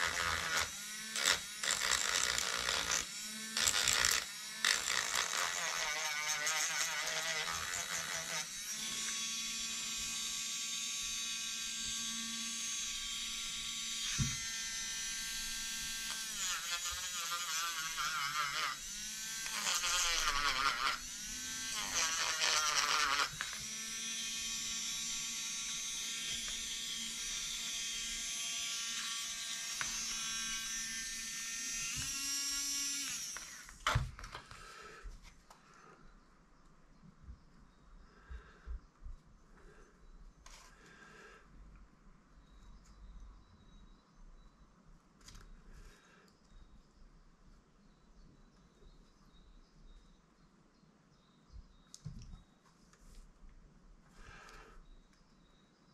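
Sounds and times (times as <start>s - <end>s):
electric rotary tool running: 0.0s - 34.0s.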